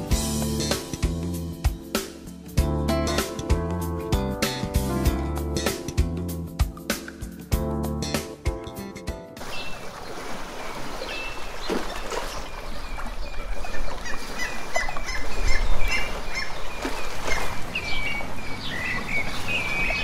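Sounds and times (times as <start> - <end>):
birds chirping: 9.4 - 20.0.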